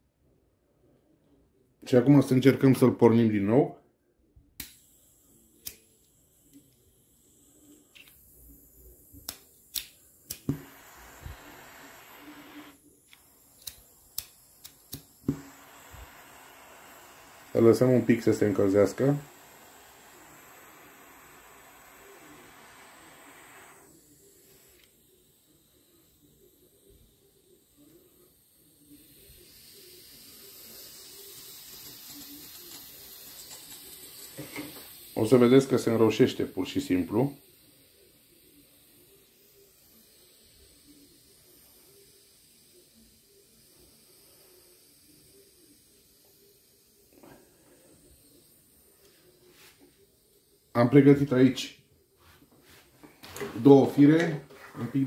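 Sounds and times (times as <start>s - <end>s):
gas hissing: 4.5s - 55.0s
lighter clicking: 4.6s - 35.5s.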